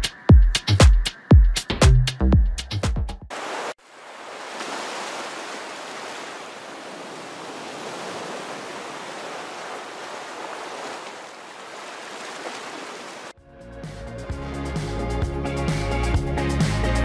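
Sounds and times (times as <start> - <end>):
rushing water: 3.3 - 13.4.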